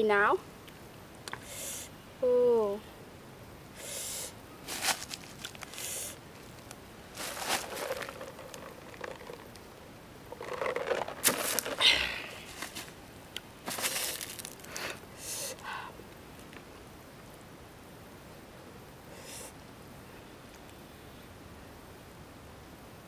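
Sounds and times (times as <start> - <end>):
plastic bottle crinkling: 4.7 - 9.7, 10.3 - 13.0, 13.6 - 14.8.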